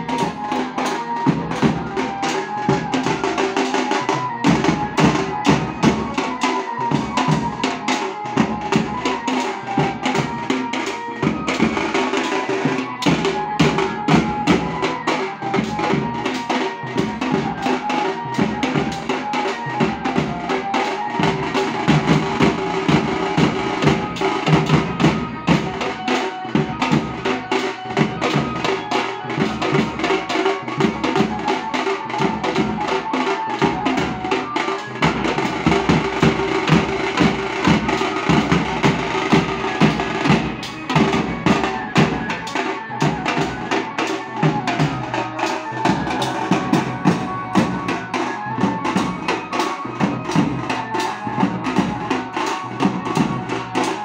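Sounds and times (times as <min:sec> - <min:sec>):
held melody line: 0:00.0 - 0:54.0
fast dense drumming: 0:32.2 - 0:49.3.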